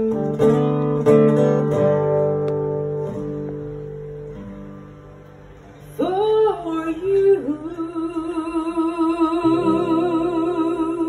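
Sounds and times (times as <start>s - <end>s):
woman singing with vibrato: 5.9s - 11.0s.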